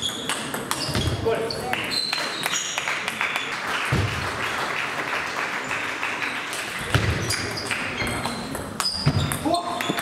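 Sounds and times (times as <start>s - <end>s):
spectators clapping: 1.7s - 6.9s, 7.5s - 8.0s.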